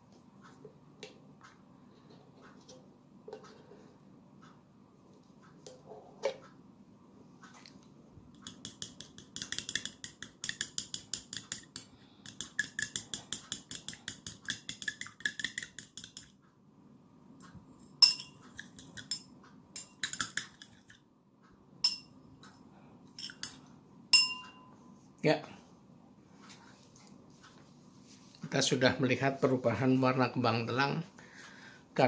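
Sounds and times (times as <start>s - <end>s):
spoon clinking against glass: 8.4s - 16.2s, 18.0s - 20.8s, 21.8s - 22.2s, 23.2s - 24.7s.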